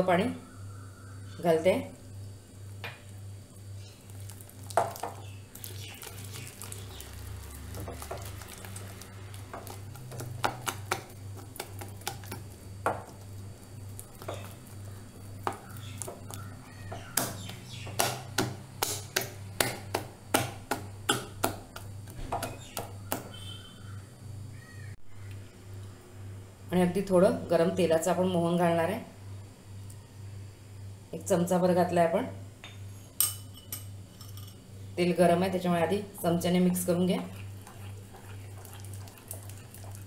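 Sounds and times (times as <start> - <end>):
steady low hum: 0.0 - 40.0
batter squelching: 3.6 - 23.7, 36.8 - 40.0.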